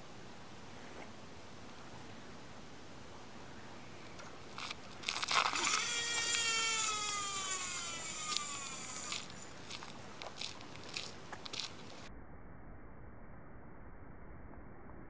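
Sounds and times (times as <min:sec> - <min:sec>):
fishing reel spool whine: 0:05.4 - 0:09.5
fishing reel clicks: 0:05.5 - 0:09.3.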